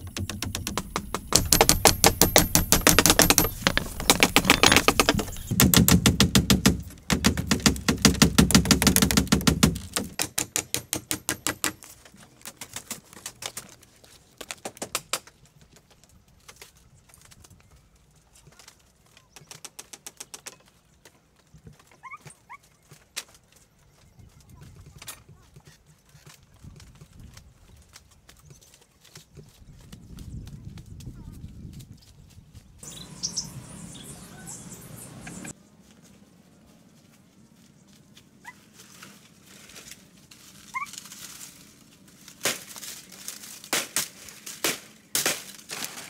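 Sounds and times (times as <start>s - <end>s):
sharp taps or knocks: 0.0s - 11.9s.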